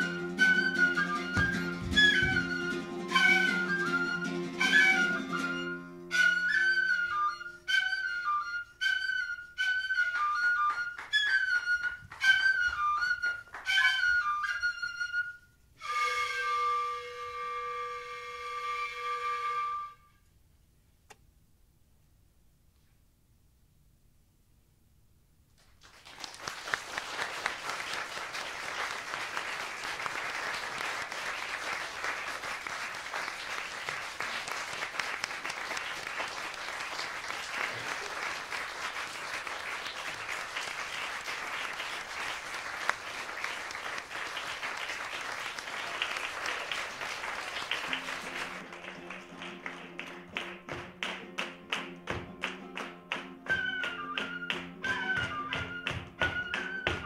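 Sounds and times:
rhythmic hand-clapping: 0.0 - 5.4, 9.1 - 14.8, 25.6 - 57.0
flamenco guitar playing: 0.0 - 15.3, 47.8 - 57.0
audience applauding: 10.0 - 14.4, 25.6 - 57.0.

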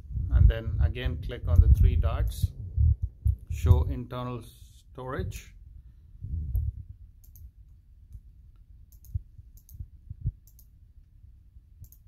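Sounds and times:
dull low thumps: 0.0 - 3.9, 5.6 - 7.5, 9.0 - 10.5
mouse buttons clicking: 10.4 - 10.7.

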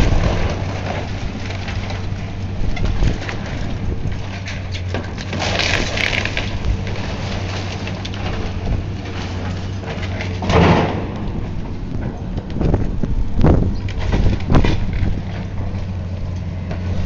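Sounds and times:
debris crackling and clattering: 0.0 - 17.0
demolition machine engine running: 0.0 - 17.0
crash of falling material: 5.0 - 11.5.

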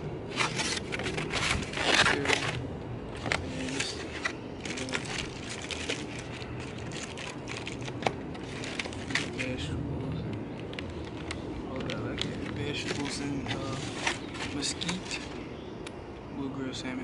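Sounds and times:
styrofoam container creaking: 0.3 - 2.6, 3.2 - 9.6, 11.8 - 15.4
wrapping crinkling: 0.3 - 9.6, 10.6 - 15.4.

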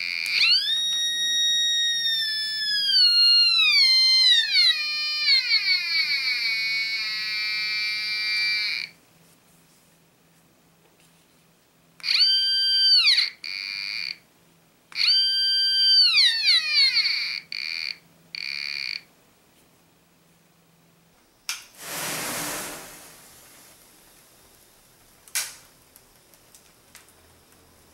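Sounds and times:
metal detector whistling tone: 0.0 - 8.9, 12.0 - 13.7, 15.0 - 17.4
hiss of flames flaring: 21.8 - 27.1.

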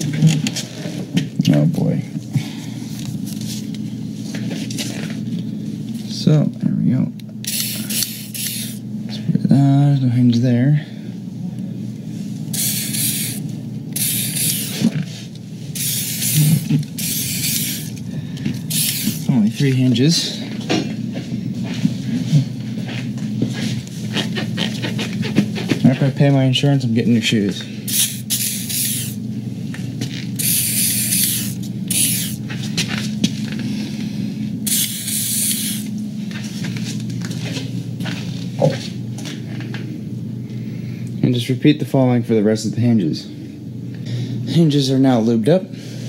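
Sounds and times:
aerosol can spraying: 7.4 - 8.8, 12.5 - 13.4, 14.0 - 14.9, 15.7 - 18.0, 18.7 - 19.3, 27.9 - 29.2, 30.4 - 32.4, 34.6 - 35.9.

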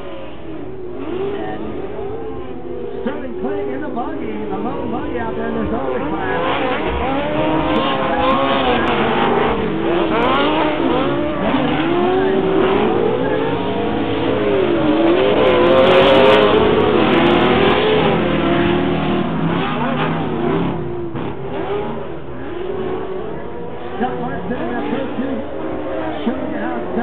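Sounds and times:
race car engines revving past: 0.0 - 27.0.

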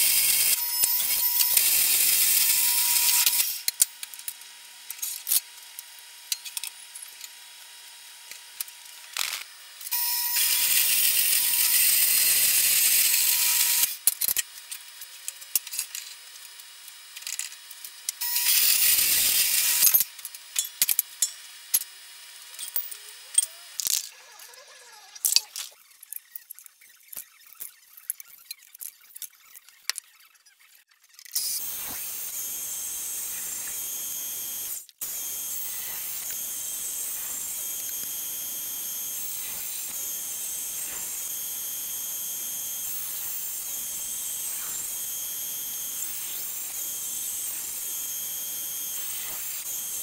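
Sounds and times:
bandsaw cutting metal hissing: 18.2 - 20.0, 31.4 - 50.0.

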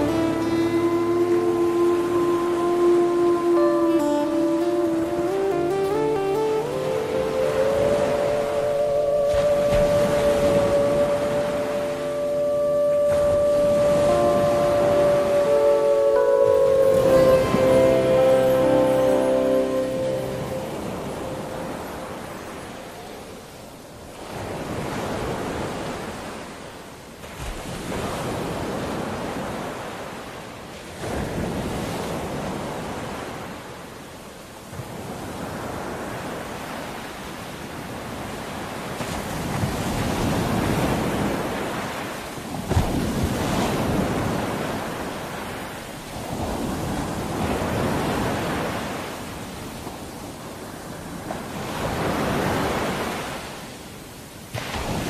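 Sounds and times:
small waves washing onto sand: 20.0 - 55.0.

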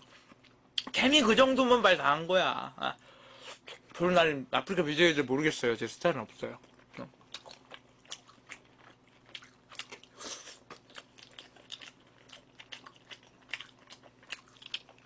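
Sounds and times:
chewing crunchy fried food: 6.3 - 15.0.

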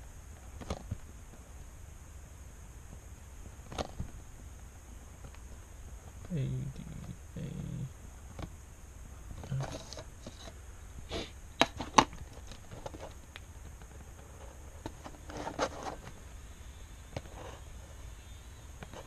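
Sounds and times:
paper rustling: 13.9 - 16.2.

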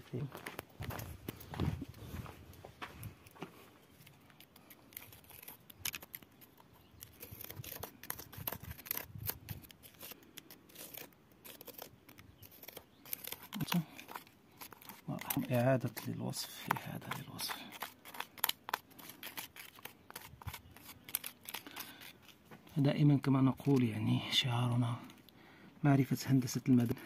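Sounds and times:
gritty crunches: 0.4 - 25.4
grit scraping against rock: 3.8 - 25.2.

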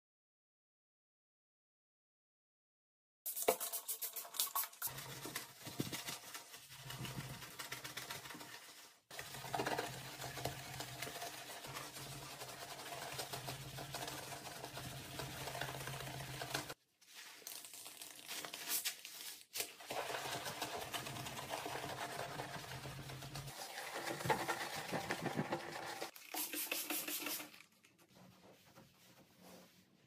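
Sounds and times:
sponge scrubbing a sink: 3.3 - 30.0.

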